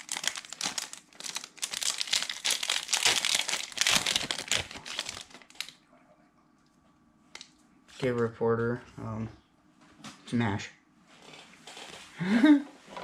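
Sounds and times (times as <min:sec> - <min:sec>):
plastic wrapper crinkling: 0:00.0 - 0:05.8.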